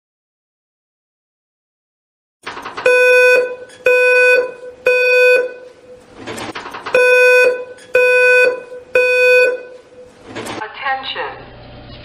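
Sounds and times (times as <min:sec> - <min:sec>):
smoke alarm beeping: 0:02.8 - 0:06.0, 0:06.9 - 0:10.2.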